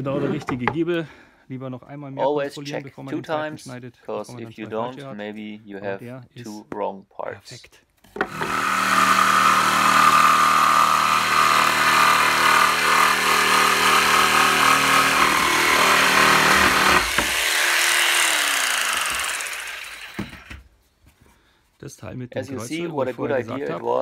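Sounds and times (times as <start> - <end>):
jigsaw cutting wood: 8.2 - 20.6
jigsaw motor winding down: 8.2 - 20.6.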